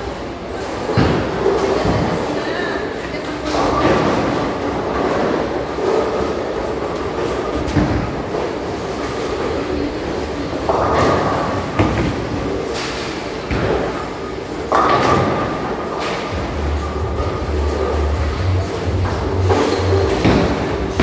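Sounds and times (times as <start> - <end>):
bowling balls rolling: 0.0 - 21.0
bowling pins crashing: 19.0 - 21.0.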